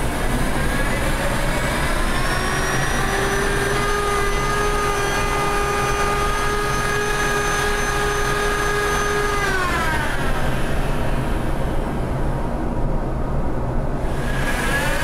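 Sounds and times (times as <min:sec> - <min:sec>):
power drill sanding disc whine: 0:00.7 - 0:10.8.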